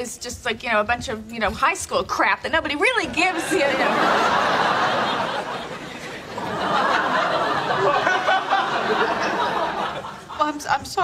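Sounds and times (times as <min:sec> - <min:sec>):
studio audience laughing: 0:03.0 - 0:10.6.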